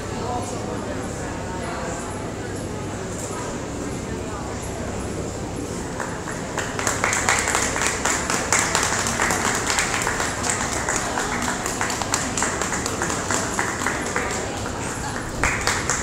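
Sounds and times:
audience applauding: 5.9s - 16.0s.

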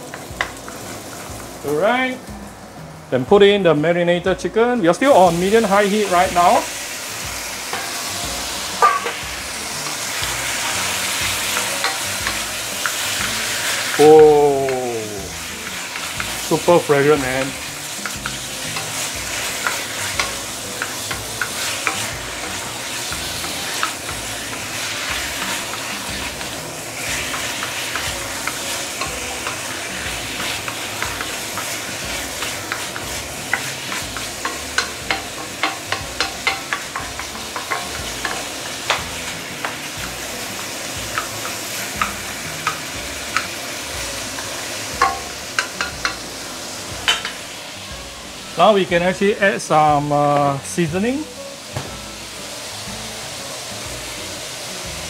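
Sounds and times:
chicken sizzling in a wok: 0.0s - 55.0s
spatula tapping and scraping pan: 0.1s - 1.3s, 7.7s - 14.0s, 17.2s - 43.6s, 44.2s - 46.2s, 47.0s - 47.4s.

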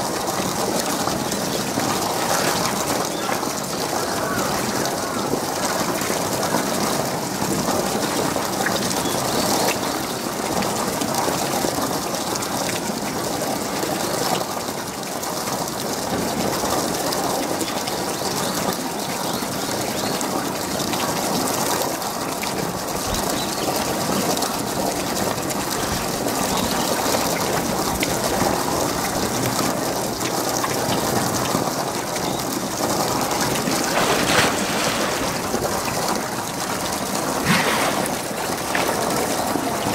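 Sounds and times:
running water rushing: 0.0s - 39.9s
splash into pool: 32.8s - 39.9s.

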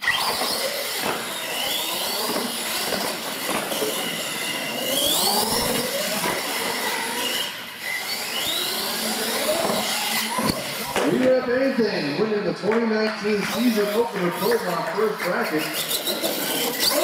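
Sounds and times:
electric motors and gears whining: 0.0s - 11.8s, 13.6s - 17.0s
tyre noise on concrete: 0.1s - 11.4s.

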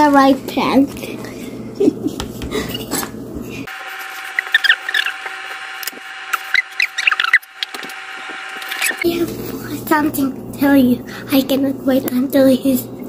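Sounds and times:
utensil squeaking on ceramic plate: 4.0s - 5.3s, 6.3s - 7.6s.

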